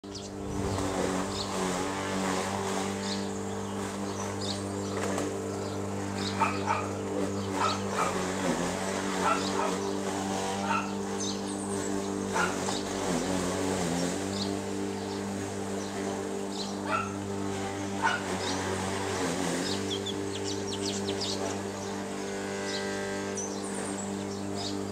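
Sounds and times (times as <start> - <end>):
low engine hum: 0.0 - 8.7
bird chirps: 19.7 - 21.4.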